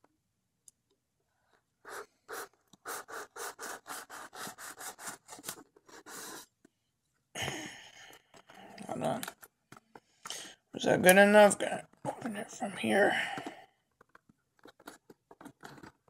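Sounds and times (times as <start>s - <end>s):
knife sawing along cardboard: 1.9s - 6.4s.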